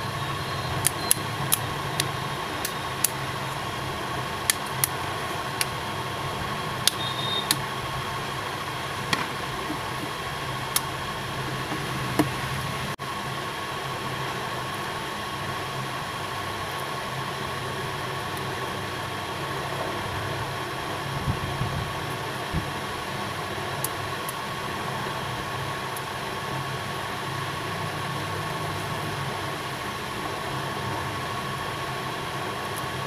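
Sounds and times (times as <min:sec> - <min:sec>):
fan-like hum: 0:00.0 - 0:33.0.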